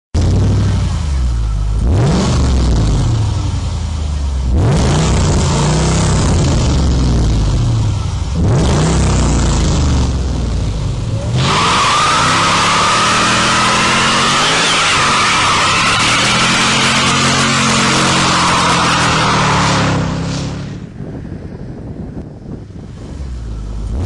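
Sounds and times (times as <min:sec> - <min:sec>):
car engine revving: 0:00.2 - 0:21.0
tyres squealing: 0:11.4 - 0:19.6.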